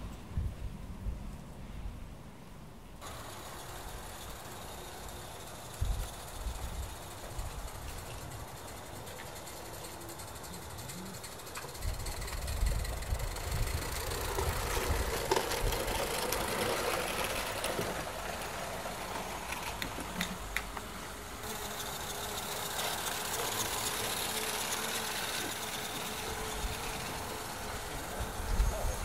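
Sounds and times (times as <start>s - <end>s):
wind rumble on microphone: 0.0s - 2.2s, 11.8s - 15.9s, 28.0s - 29.0s
drone propellers humming: 3.0s - 29.0s.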